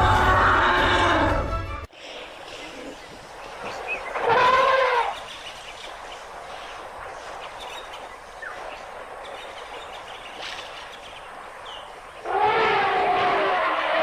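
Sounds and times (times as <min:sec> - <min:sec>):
faint bird chirps: 0:02.0 - 0:12.3
elephant trumpeting: 0:04.2 - 0:05.2, 0:12.2 - 0:14.0.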